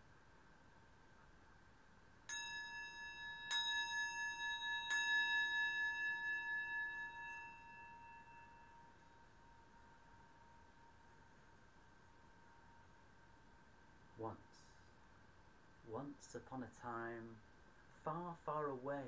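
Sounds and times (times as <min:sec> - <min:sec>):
bright wavering bowl ring: 0:02.2 - 0:14.9
singing bowl struck with wooden striker: 0:02.3 - 0:10.7.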